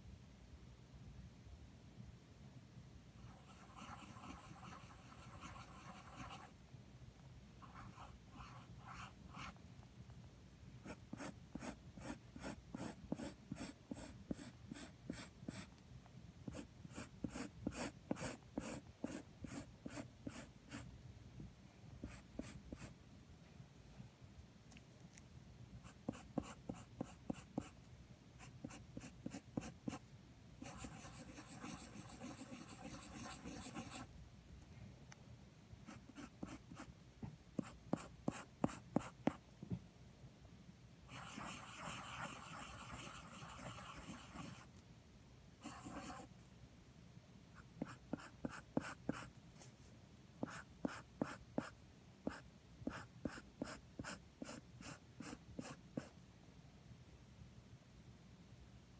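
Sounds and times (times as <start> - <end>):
pencil scratching on paper: 3.2 - 6.5, 7.6 - 9.6, 10.8 - 15.7, 16.5 - 20.8, 22.0 - 22.9, 25.8 - 27.8, 28.4 - 30.0, 30.6 - 34.1, 35.9 - 36.9, 37.6 - 39.4, 41.1 - 44.7, 45.6 - 46.3, 47.6 - 49.3, 50.4 - 56.1.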